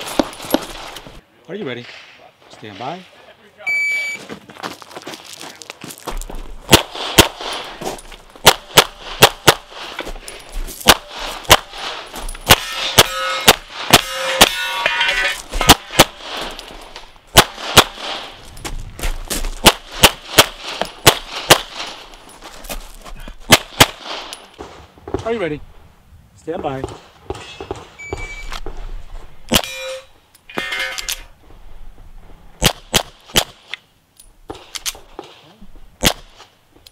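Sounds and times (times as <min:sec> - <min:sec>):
pistol shots: 0:06.7 - 0:07.8, 0:08.4 - 0:09.8, 0:10.8 - 0:14.8, 0:15.6 - 0:16.6, 0:17.3 - 0:18.4, 0:19.6 - 0:22.0, 0:23.5 - 0:24.4, 0:29.5 - 0:29.9, 0:32.6 - 0:33.6, 0:36.0 - 0:36.4
steel targets clanging: 0:12.2 - 0:17.2, 0:29.5 - 0:31.3.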